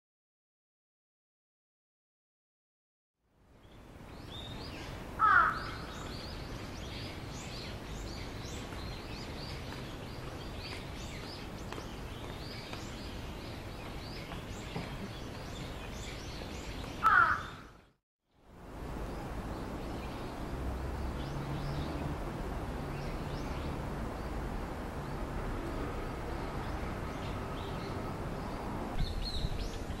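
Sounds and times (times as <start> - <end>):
small birds chirping: 3.6 - 18.0
loud bird call: 17.0 - 17.8.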